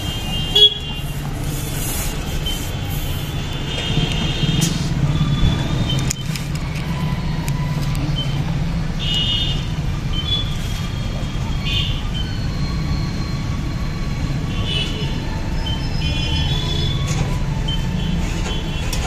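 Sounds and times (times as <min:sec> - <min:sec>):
motor vehicles humming: 0:00.0 - 0:19.0.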